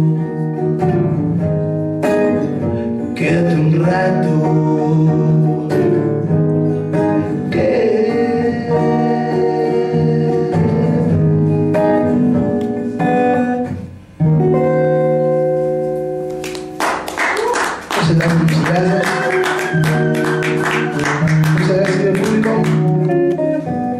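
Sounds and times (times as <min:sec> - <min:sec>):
man singing: 0:00.0 - 0:00.7, 0:03.1 - 0:06.4, 0:07.2 - 0:12.5, 0:18.0 - 0:20.0, 0:21.0 - 0:22.9
acoustic guitar strumming chords: 0:00.0 - 0:23.9.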